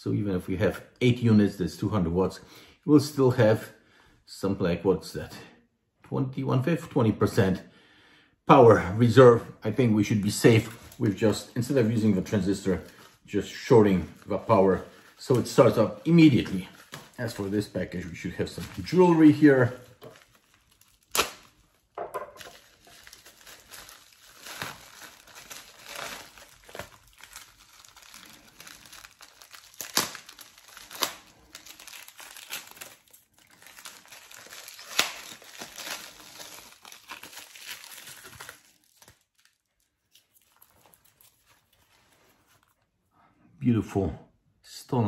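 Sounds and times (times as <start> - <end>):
wrapping crinkling and tearing: 9.1 - 43.0
scissors cutting package: 22.4 - 39.5.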